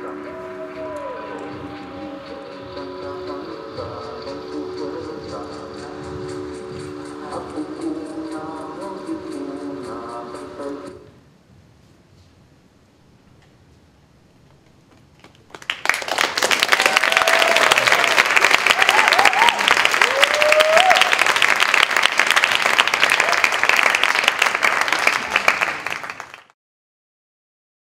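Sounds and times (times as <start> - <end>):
voices whooping: 0.0 - 2.6, 16.7 - 21.3
audience applauding: 15.2 - 26.6.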